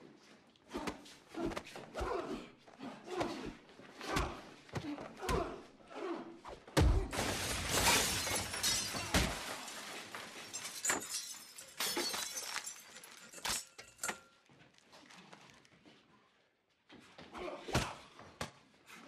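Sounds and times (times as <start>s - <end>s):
glass shattering: 7.1s - 14.3s.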